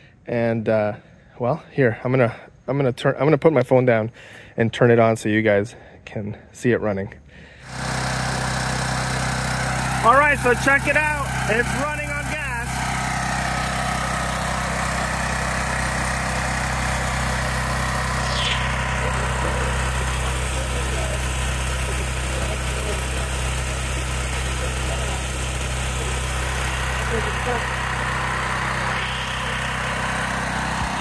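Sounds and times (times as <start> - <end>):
generator engine running: 7.4 - 31.0.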